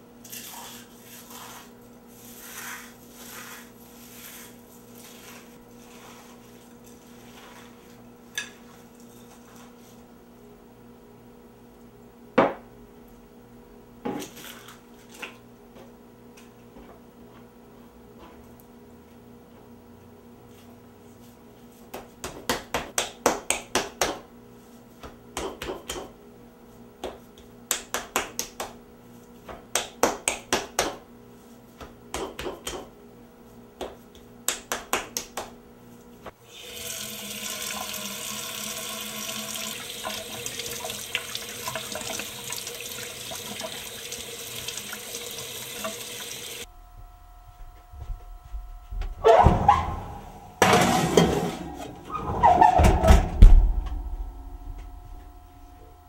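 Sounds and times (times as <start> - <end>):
faucet running into sink: 36.5 - 46.6.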